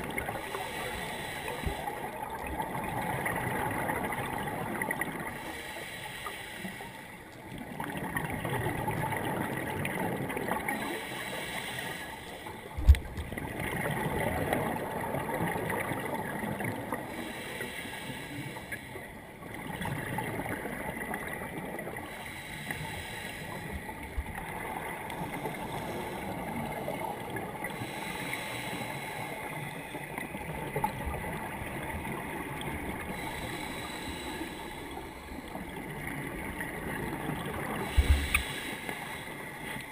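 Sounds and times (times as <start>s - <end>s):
underwater regulator breathing: 0.2s - 2.2s, 5.3s - 7.2s, 10.7s - 13.2s, 17.1s - 19.1s, 21.9s - 24.2s, 25.2s - 30.2s, 32.9s - 35.8s, 37.6s - 39.9s.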